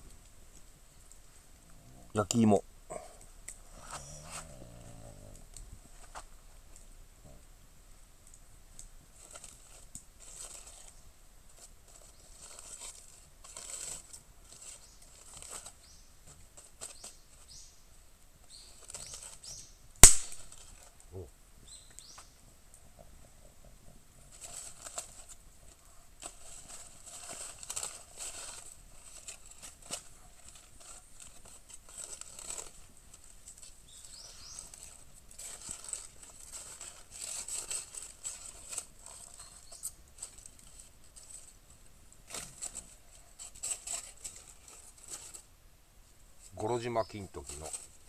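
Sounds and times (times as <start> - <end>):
aluminium foil crinkling: 8.2 - 17.7, 18.5 - 21.2, 24.2 - 45.5, 46.5 - 48.0.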